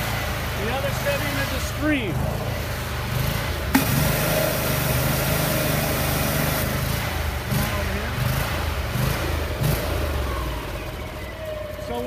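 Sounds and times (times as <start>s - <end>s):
engine running steadily: 0.0s - 12.0s
water jetting from hose nozzle: 2.6s - 7.7s.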